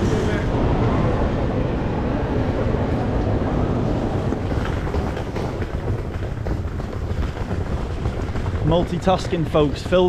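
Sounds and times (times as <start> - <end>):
suitcase wheels rumbling over paving: 4.2 - 10.0.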